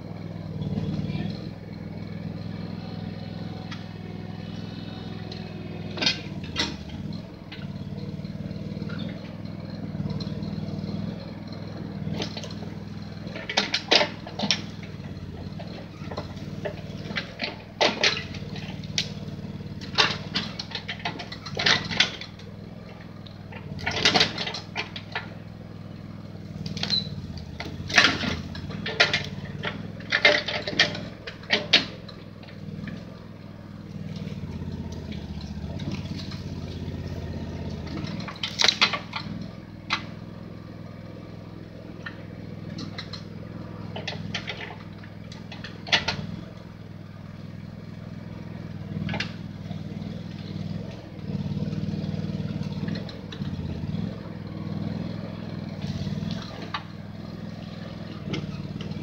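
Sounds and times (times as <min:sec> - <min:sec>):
backhoe engine running: 0:00.0 - 0:59.0
branches cracking and clattering: 0:26.5 - 0:40.7, 0:47.4 - 0:59.0.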